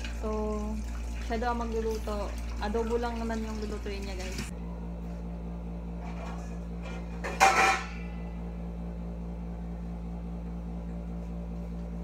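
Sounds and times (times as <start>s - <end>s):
steady low hum: 0.0s - 12.0s
kitchenware clatter with metallic ring: 6.1s - 8.3s.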